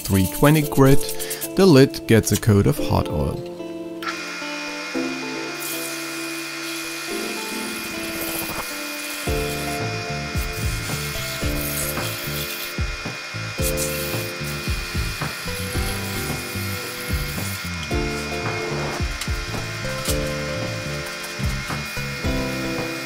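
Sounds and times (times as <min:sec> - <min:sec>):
wood lathe running: 0:04.0 - 0:23.0
background music with beat: 0:09.2 - 0:23.0.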